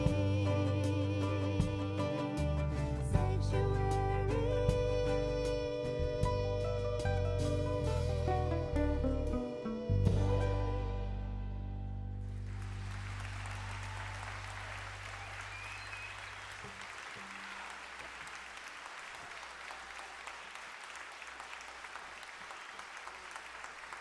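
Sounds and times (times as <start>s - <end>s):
audience applauding: 12.2s - 24.0s.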